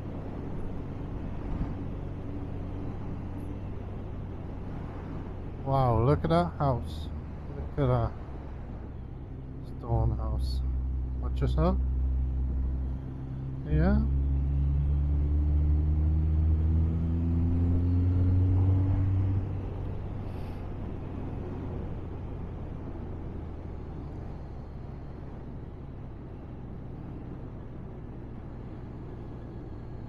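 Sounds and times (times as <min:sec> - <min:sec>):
wind and road noise: 0:00.0 - 0:30.0
motorcycle engine accelerating: 0:14.1 - 0:19.4.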